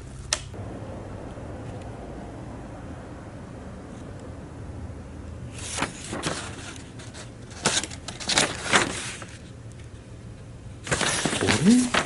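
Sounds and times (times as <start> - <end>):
low steady hum: 0.0 - 12.0
paper rustling: 5.6 - 9.5, 10.8 - 12.0.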